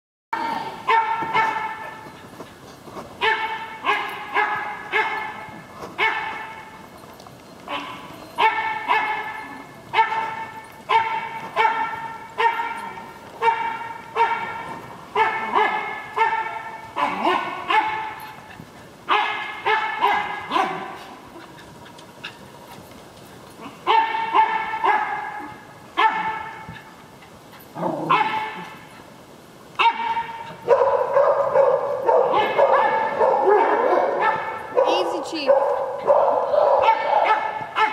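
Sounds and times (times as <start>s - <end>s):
dog barking high-pitched: 0.8s - 2.0s, 3.2s - 5.4s, 6.0s - 6.6s, 7.7s - 18.2s, 19.1s - 21.0s, 23.8s - 26.7s, 28.1s - 28.6s, 29.8s - 37.9s.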